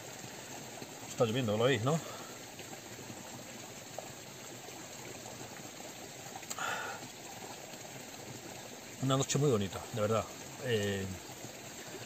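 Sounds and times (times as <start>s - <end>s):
rain falling: 0.0s - 12.0s
stream running water: 0.0s - 12.0s.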